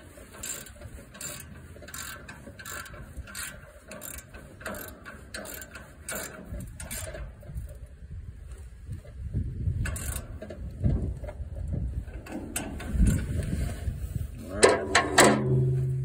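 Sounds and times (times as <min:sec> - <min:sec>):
ratchet wrench clicking: 0:00.3 - 0:07.3, 0:09.8 - 0:10.5
wind rumbling on microphone: 0:06.3 - 0:16.0.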